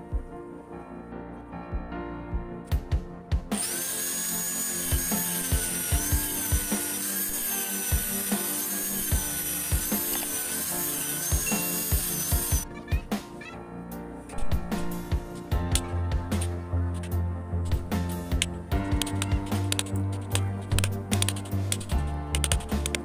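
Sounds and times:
background music with steady beat: 0:00.0 - 0:23.0
angle grinder cutting wood: 0:03.6 - 0:12.7.

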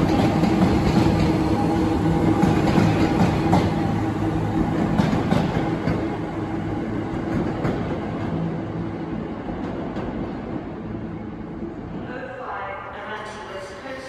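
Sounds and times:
train passing: 0:00.0 - 0:14.0.

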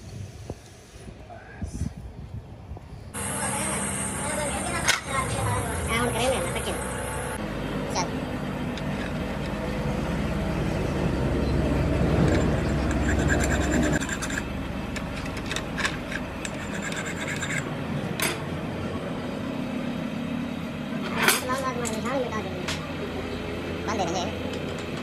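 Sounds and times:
workshop machine hum: 0:03.1 - 0:25.0
metal scraping and rubbing: 0:12.0 - 0:17.7.

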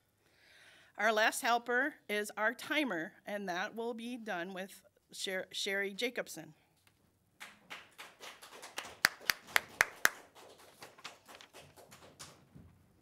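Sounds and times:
sharp loud claps close up: 0:07.4 - 0:12.4
hand-clapping applause: 0:07.4 - 0:12.6.

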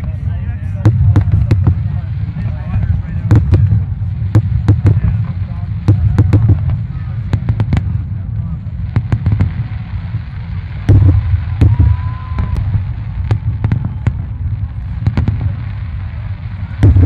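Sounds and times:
fireworks bangs: 0:00.0 - 0:17.0
low rumble: 0:00.0 - 0:17.0
firework whistle: 0:09.4 - 0:17.0.

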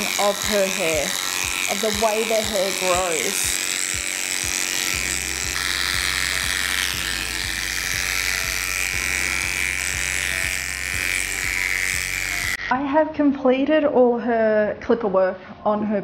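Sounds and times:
dog clipper buzzing: 0:00.0 - 0:12.8.

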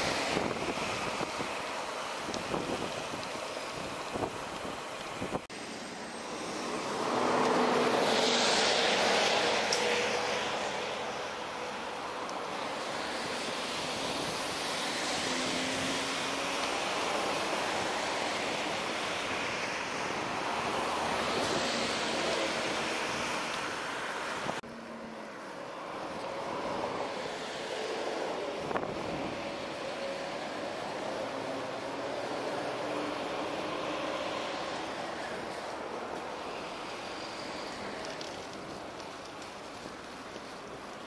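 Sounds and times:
wind on microphone: 0:00.0 - 0:01.6, 0:02.2 - 0:05.5, 0:28.2 - 0:29.9
cars and trucks passing: 0:00.0 - 0:41.0.

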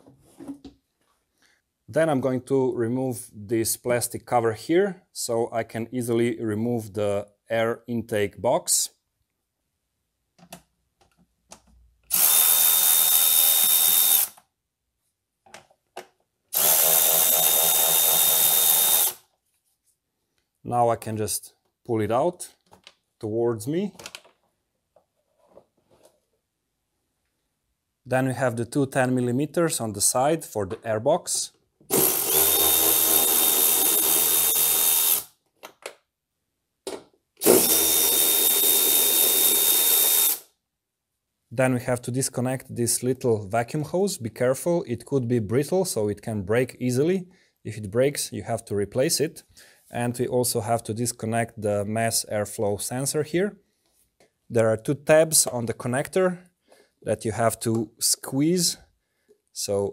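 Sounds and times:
cordless ratchet whining: 0:12.1 - 0:14.4, 0:16.5 - 0:19.2, 0:31.9 - 0:35.3, 0:37.4 - 0:40.5.

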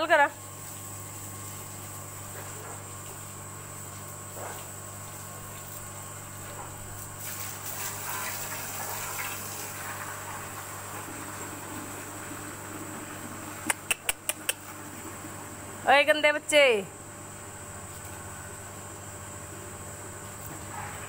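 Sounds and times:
hose water splashing on concrete: 0:00.0 - 0:15.4
steady low hum: 0:10.4 - 0:21.0.

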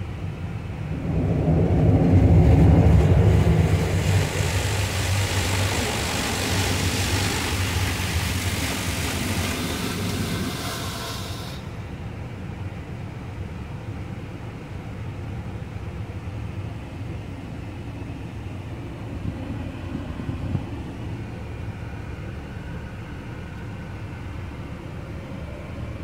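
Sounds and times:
low rumble: 0:00.0 - 0:12.9
water spray hissing on windshield: 0:03.2 - 0:11.9.

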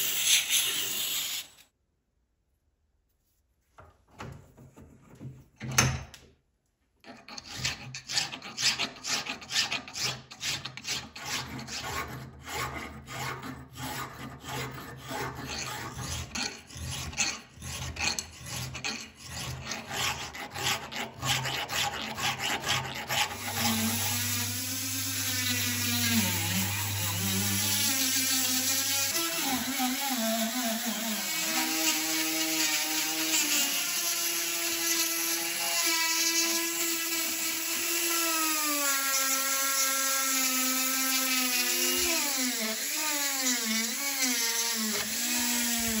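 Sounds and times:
hand file scraping steel: 0:07.0 - 0:46.0
rotary tool grinding whine: 0:14.5 - 0:46.0.

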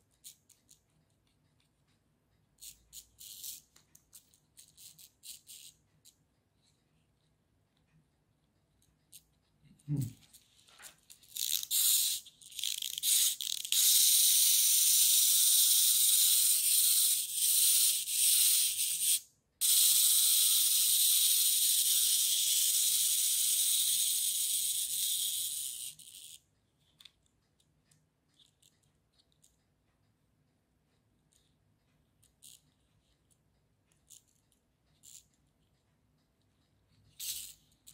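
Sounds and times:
clockwork motor whirring: 0:11.4 - 0:26.3.

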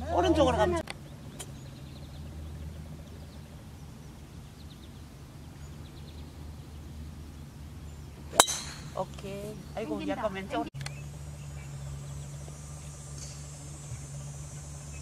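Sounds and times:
steady low hum: 0:00.0 - 0:15.0
golf club striking ball: 0:08.2 - 0:09.5.

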